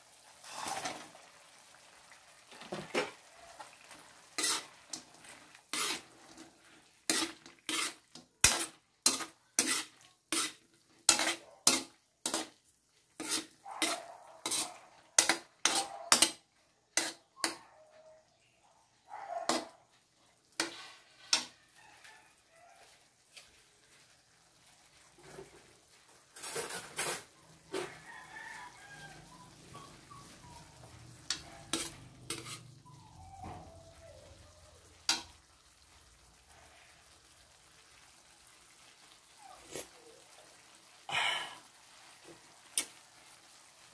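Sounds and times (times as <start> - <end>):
metal spatula scraping a wok: 0.3 - 1.2, 3.6 - 17.6, 20.5 - 22.0, 22.8 - 33.0.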